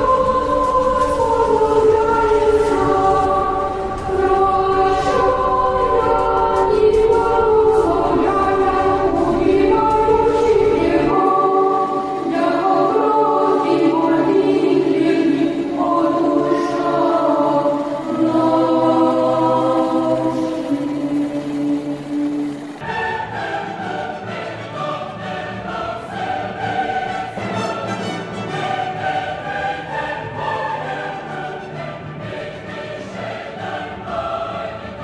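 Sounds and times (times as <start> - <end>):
low rumble: 0.0 - 12.2
choir holding long notes: 0.0 - 35.0.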